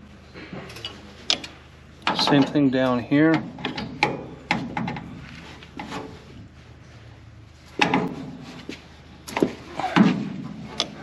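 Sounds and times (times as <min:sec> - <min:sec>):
wrench knocking and clinking on nuts: 0:00.8 - 0:02.7.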